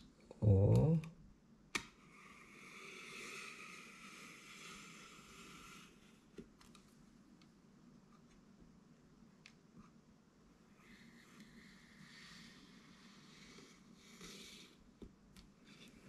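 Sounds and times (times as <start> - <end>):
person saying oh: 0.3 - 1.1
faint rubbing of packaging: 2.0 - 6.4.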